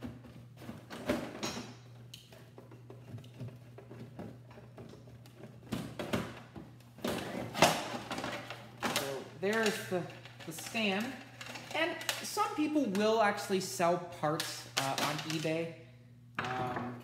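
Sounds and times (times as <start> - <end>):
hard plastic knocking and clattering: 0.0 - 10.2.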